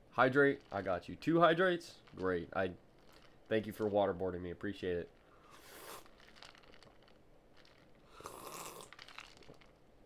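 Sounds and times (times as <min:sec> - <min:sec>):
person drinking and swallowing: 0:05.2 - 0:09.9.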